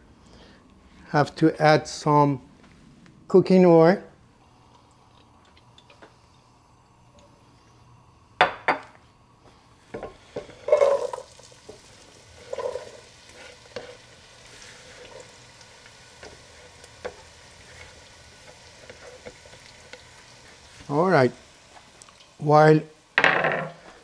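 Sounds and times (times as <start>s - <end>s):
onion sizzling in oil: 5.3s - 23.2s.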